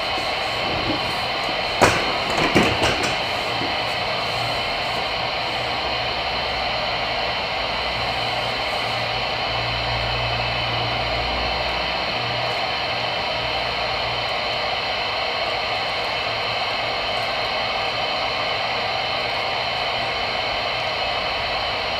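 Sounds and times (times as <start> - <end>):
radio static hiss: 0.0 - 10.6.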